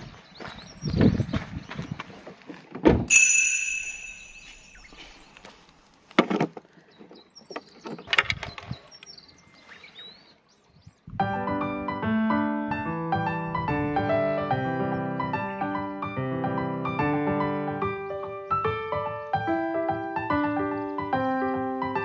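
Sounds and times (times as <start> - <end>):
metal object ringing: 3.1 - 4.9.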